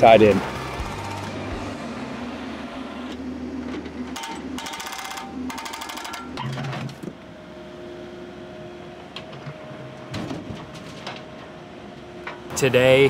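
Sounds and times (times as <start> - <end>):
hydraulic breaker hammering pavement: 0.0 - 1.9, 4.1 - 7.0
heavy equipment engine running: 0.0 - 13.0.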